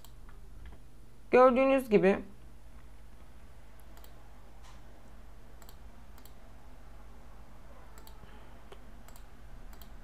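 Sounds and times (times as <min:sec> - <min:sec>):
computer mouse clicks: 0:00.0 - 0:00.2, 0:03.8 - 0:04.2, 0:05.6 - 0:06.4, 0:07.9 - 0:10.0
faint low hum: 0:00.0 - 0:10.0.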